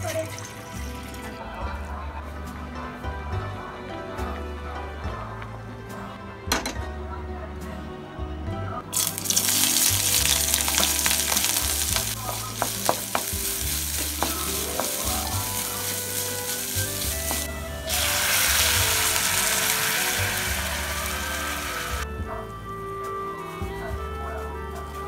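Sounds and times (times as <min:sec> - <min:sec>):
water poured into hot pan: 0:00.1 - 0:01.1, 0:09.0 - 0:22.0
vegetables sizzling in hot oil: 0:09.0 - 0:22.0
wooden spatula scraping pan: 0:10.2 - 0:22.0.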